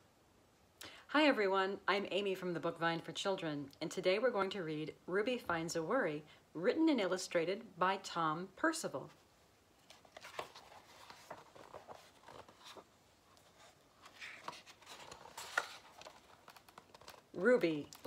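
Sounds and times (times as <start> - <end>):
book pages rustling: 9.1 - 18.0.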